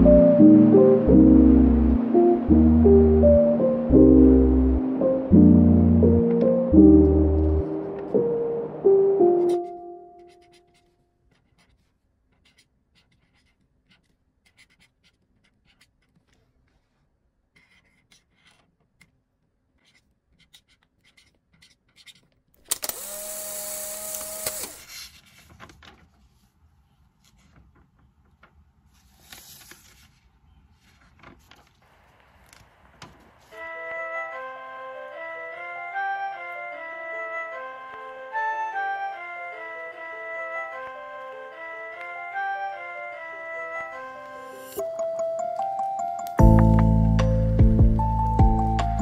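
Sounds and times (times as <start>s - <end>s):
pen squeaking stroke: 9.3s - 16.3s, 19.8s - 22.3s
pen scratching on card: 9.3s - 16.5s, 17.5s - 19.1s, 19.7s - 22.4s.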